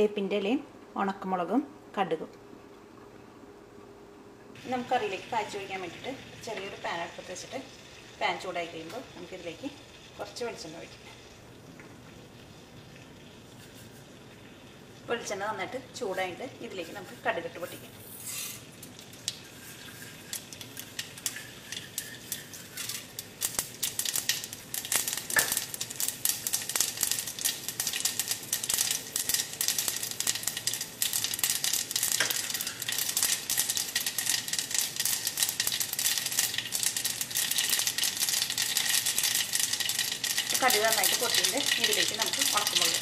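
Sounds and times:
oil sizzling: 4.5 - 43.0
mustard seeds popping in oil: 18.8 - 43.0.

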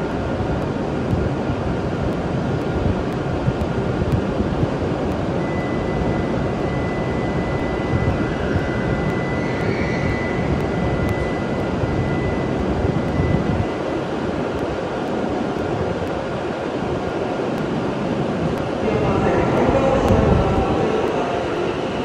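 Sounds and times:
train equipment rushing hum: 0.0 - 22.0
thin high steady tone: 5.3 - 15.0.

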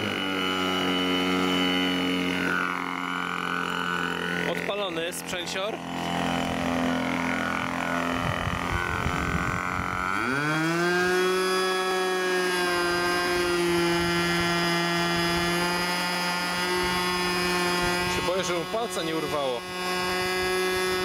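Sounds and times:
model aircraft engine revving: 0.0 - 21.0.

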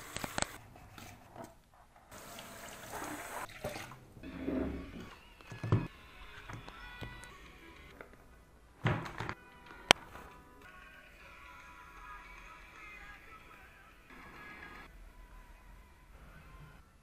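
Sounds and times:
tap water splashing over dishes: 2.2 - 4.0.

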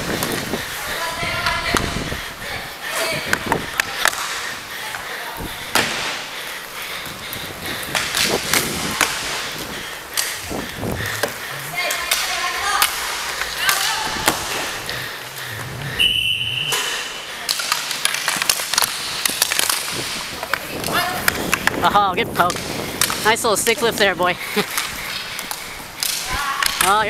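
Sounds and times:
players' voices: 0.0 - 27.0
skate wheels rolling: 0.0 - 27.0
hockey sticks and puck clacking: 2.9 - 27.0
high steady tone: 15.6 - 17.2.

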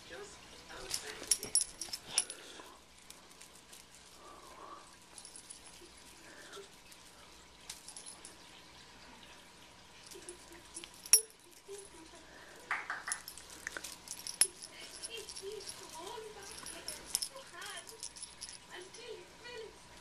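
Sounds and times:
metal collar tags clinking: 0.7 - 4.4, 5.0 - 8.6, 10.0 - 12.2, 12.9 - 19.1.

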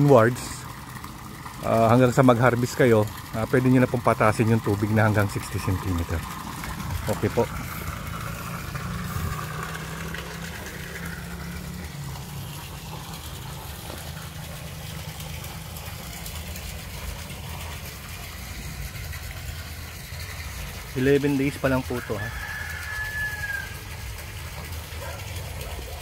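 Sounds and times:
moving water: 0.0 - 26.0
pump motor hum: 0.0 - 26.0.

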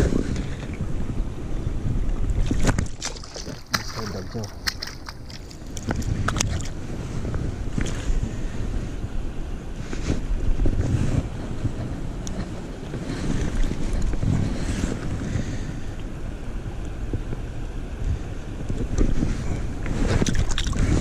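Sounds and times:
wind buffeting microphone: 0.0 - 21.0
water splashes: 2.3 - 6.8, 20.2 - 21.0.

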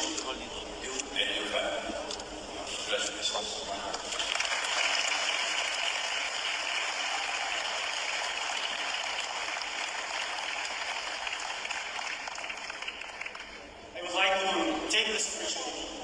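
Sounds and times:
audience applauding: 4.1 - 13.8.

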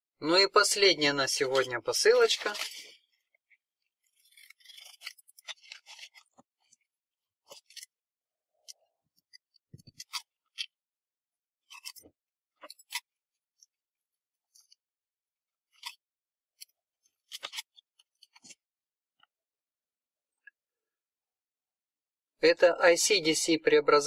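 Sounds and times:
plastic wrapping crinkling: 4.1 - 6.8.

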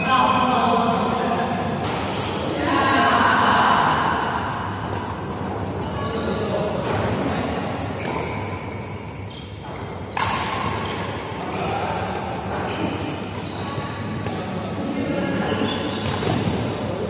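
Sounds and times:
court shoes squeaking: 1.8 - 2.6, 4.5 - 17.0
rackets striking shuttlecock: 10.0 - 11.4.

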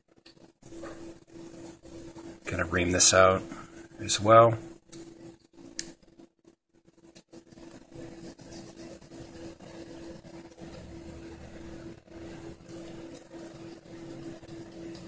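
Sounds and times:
steady machine hum: 0.0 - 15.0
faint rubbing: 6.9 - 14.5.

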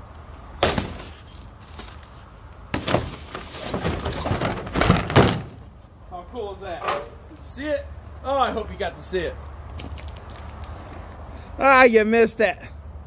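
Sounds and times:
rustling cardboard: 0.7 - 5.6
plastic sheet scraping on gravel: 2.9 - 4.8.

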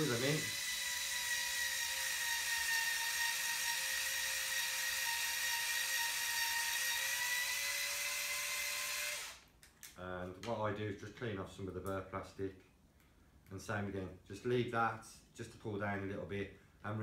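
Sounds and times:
rotary power tool whining: 0.0 - 9.4.

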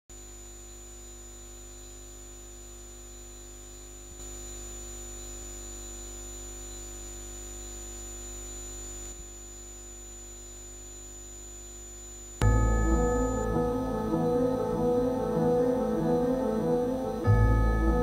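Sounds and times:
electrical hum and hiss: 0.2 - 18.0
thin high whine: 3.1 - 18.0.

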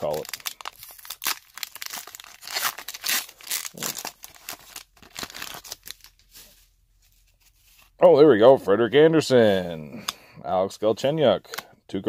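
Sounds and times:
foil wrapper tearing: 0.0 - 6.5.

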